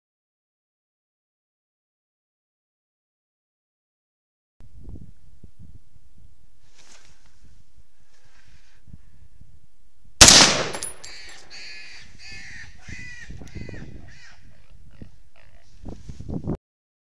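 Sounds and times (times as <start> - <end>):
loud gunshot: 10.2 - 11.3.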